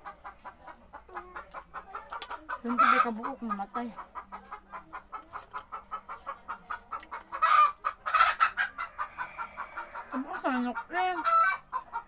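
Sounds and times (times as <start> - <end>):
chicken clucking: 0.0 - 12.0
chicken squawks: 7.3 - 11.8.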